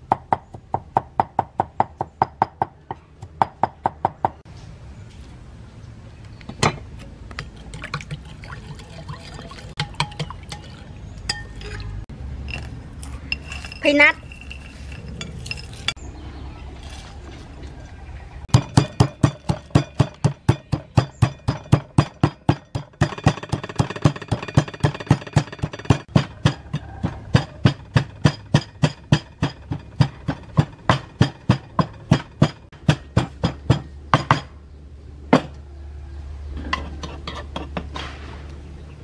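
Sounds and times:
wooden pestle pounding in mortar: 18.5 - 34.5.

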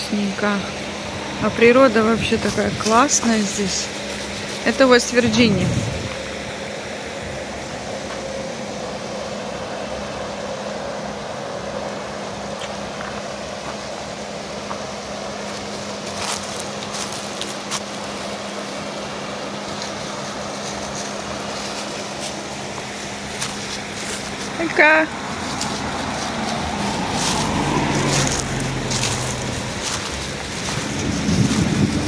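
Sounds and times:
creek rushing over rocks: 12.0 - 32.0.

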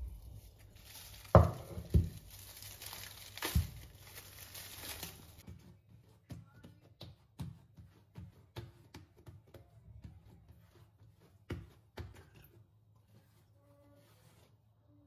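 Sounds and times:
hands patting dough: 0.0 - 13.4.

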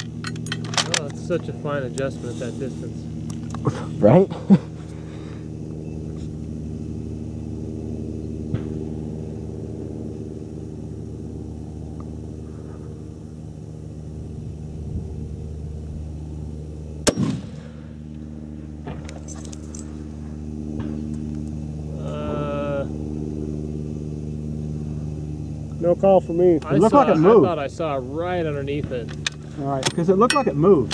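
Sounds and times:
low engine hum: 0.0 - 30.9
rifle shot with echo: 17.0 - 17.8.

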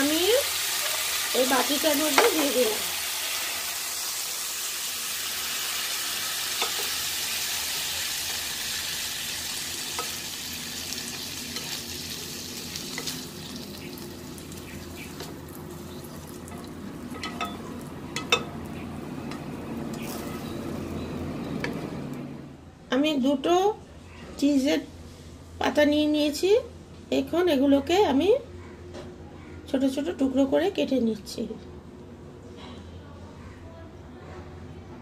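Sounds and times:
chicken sizzling in a frying pan: 0.0 - 22.1.

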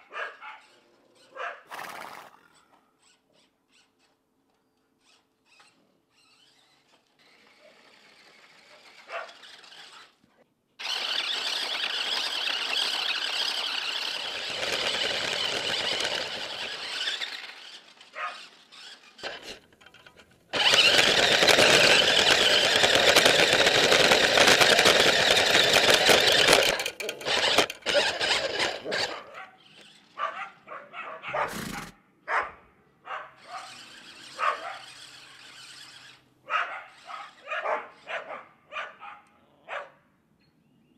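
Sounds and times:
remote-control car motor whining: 0.6 - 1.3, 2.5 - 4.2, 5.0 - 30.3, 33.4 - 38.1.

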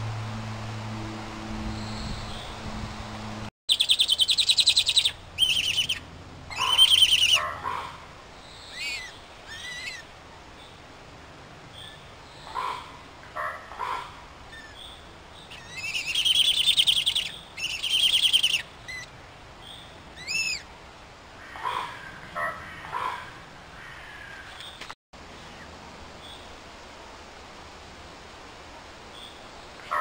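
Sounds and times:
owl chick rasping calls: 3.7 - 7.9, 8.6 - 10.0, 15.5 - 19.1, 20.2 - 20.6
short owl calls: 3.8 - 8.0.

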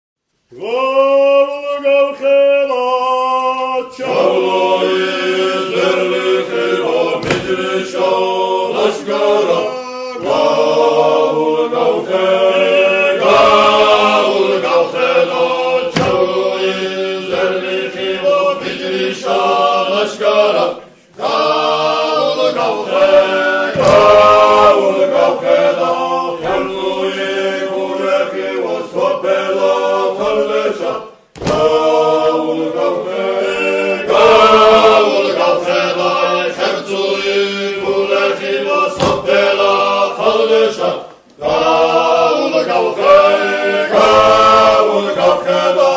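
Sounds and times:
choir chanting in harmony: 0.5 - 45.9.

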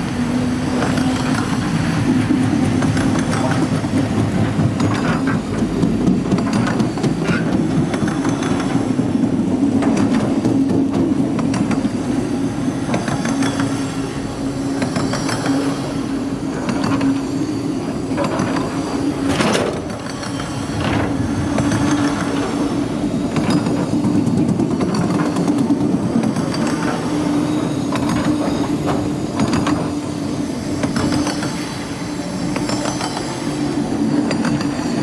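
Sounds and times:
freight train rumbling past: 0.0 - 35.0
train wheel squeal: 0.0 - 35.0
wheels clicking over rails: 0.0 - 35.0.

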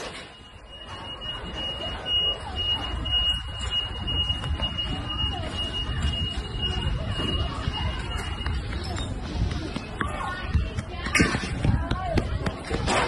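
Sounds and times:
high-pitched electronic alarm: 0.0 - 8.7
faint voices: 0.0 - 13.0
low street rumble: 0.0 - 13.0.

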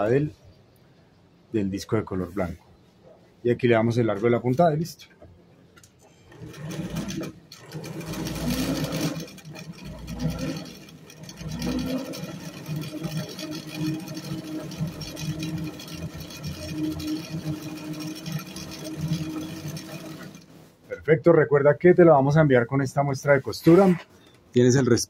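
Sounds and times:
electric sewing machine stitching: 6.2 - 20.6.

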